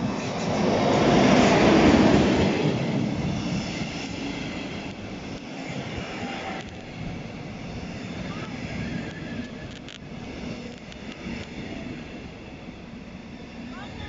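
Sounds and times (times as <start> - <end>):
train wheels rumbling and rattling: 0.0 - 14.0.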